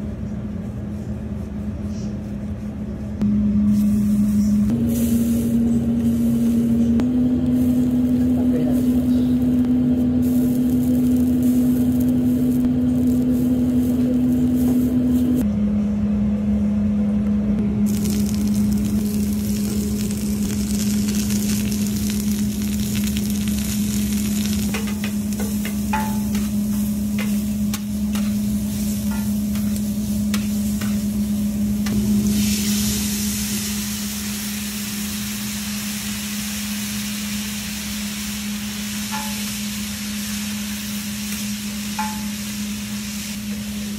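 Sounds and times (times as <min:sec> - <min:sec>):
steady low hum: 0:00.0 - 0:43.9
vegetables sizzling on griddle: 0:07.3 - 0:15.0, 0:17.8 - 0:43.9
metal spatula scraping griddle: 0:24.7 - 0:31.1.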